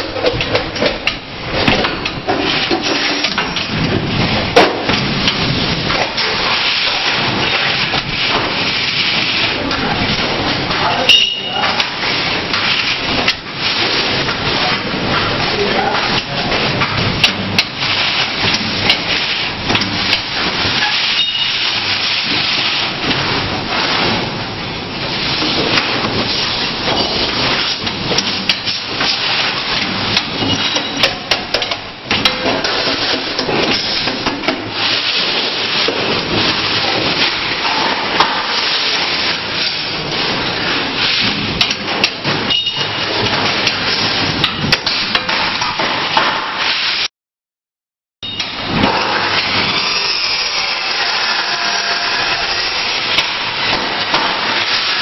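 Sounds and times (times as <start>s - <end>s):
workshop noise: 0.0s - 47.1s, 48.2s - 55.0s.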